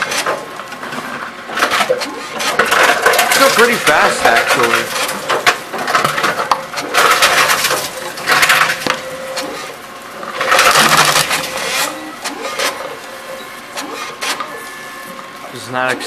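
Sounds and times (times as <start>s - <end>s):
vending machine whirring and clattering: 0.0s - 16.0s.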